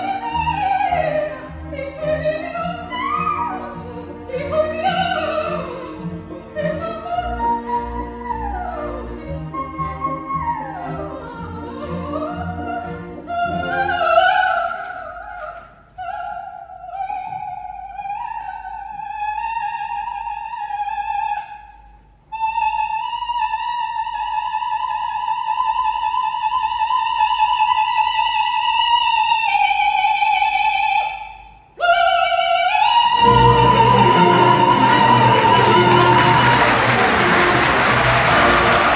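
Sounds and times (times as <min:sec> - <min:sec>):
soprano singing opera: 0:00.0 - 0:21.7, 0:22.3 - 0:38.9
orchestra playing: 0:33.2 - 0:38.9.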